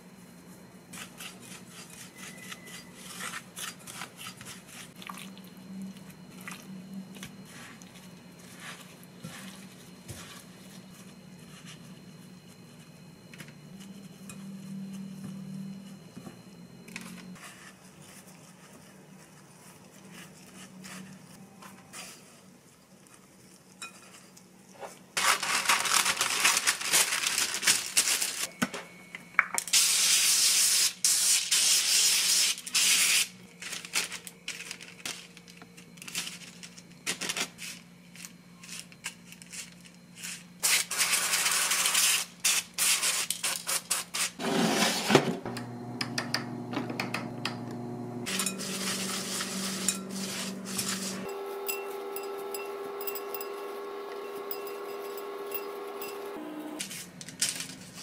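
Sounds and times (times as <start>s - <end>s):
cooking spray hissing: 29.7s - 33.4s, 47.7s - 51.6s.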